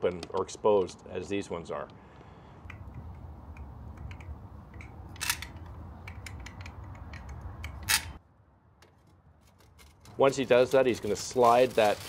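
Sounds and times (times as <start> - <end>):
caulking gun clicking: 2.6 - 8.2.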